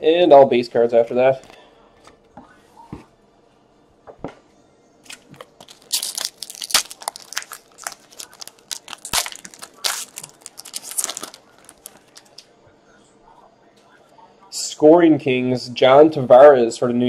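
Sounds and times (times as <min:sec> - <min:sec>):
foil wrapper tearing and crinkling: 0:05.1 - 0:12.4.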